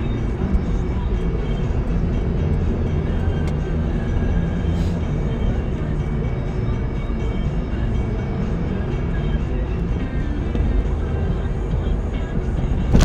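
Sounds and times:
road noise: 0.0 - 13.0
vehicle engine hum: 0.0 - 13.0.

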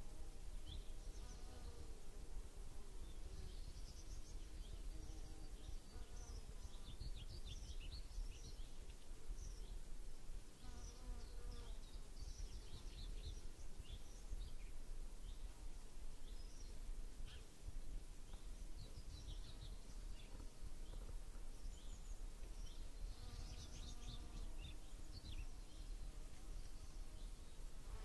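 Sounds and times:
flying insect buzzing: 22.7 - 28.0.

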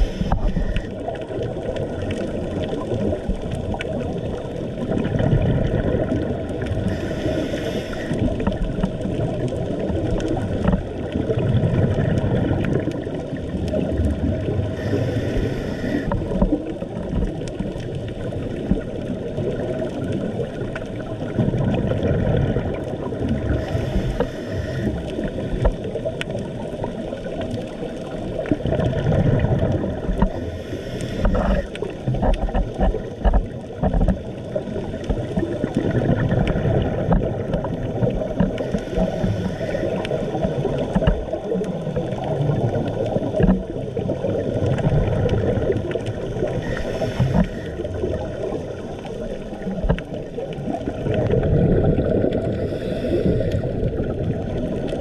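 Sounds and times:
underwater rumble of moving water: 0.0 - 55.0
regulator exhaling bubbles: 21.2 - 25.7, 28.4 - 55.0.

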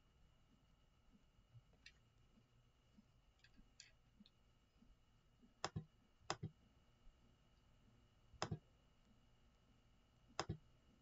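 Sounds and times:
computer mouse clicks: 5.6 - 6.6, 8.4 - 8.6, 10.4 - 10.6.

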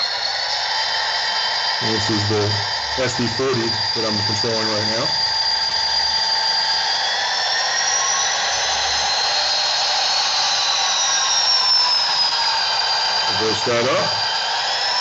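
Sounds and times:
model train diesel engine sound: 1.7 - 5.6, 10.7 - 15.0.

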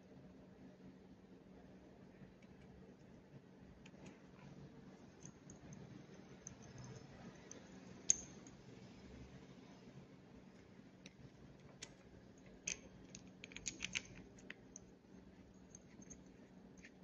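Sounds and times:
faint steady hum: 0.0 - 17.0
small clicks of cable handling: 11.0 - 14.9.

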